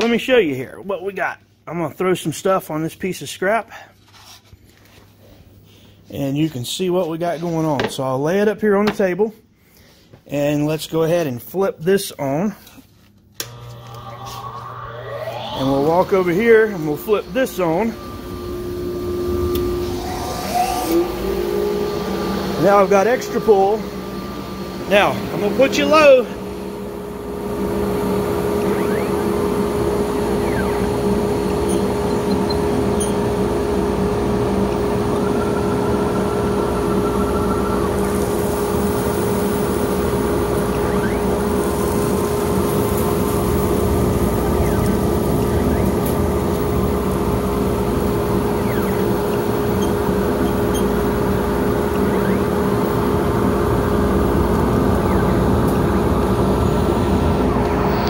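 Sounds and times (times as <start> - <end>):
brief higher whine: 13.4 - 58.0
dust collector motor hum: 13.4 - 58.0
air rushing through hose: 13.8 - 25.3.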